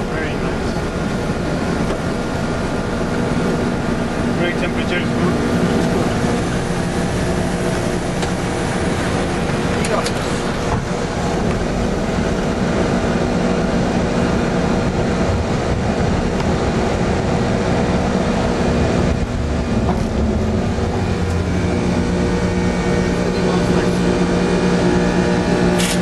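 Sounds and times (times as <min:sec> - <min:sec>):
constant droning hum: 0:00.0 - 0:26.0
jet engines rumbling: 0:00.0 - 0:26.0
rushing air: 0:05.1 - 0:25.8.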